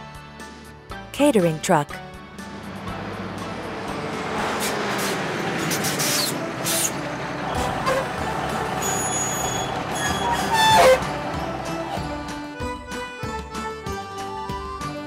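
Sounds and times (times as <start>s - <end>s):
background music: 0.0s - 15.0s
truck engine running: 2.0s - 13.6s
loud squeal: 8.8s - 11.1s.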